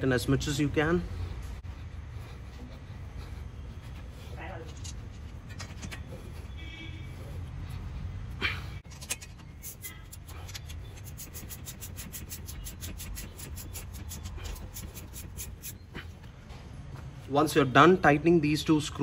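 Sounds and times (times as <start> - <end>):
ratchet wrench clicking: 8.9 - 15.8.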